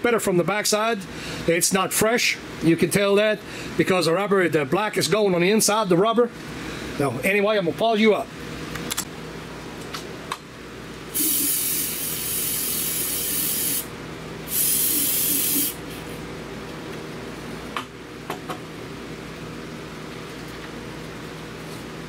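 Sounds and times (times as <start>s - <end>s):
aerosol spray hissing: 11.2s - 13.9s, 14.5s - 15.8s.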